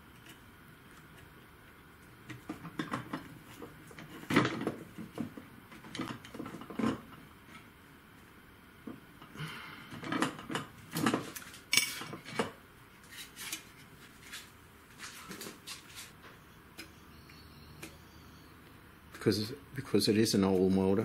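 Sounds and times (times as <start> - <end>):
plastic and metal parts clattering: 2.4 - 7.0.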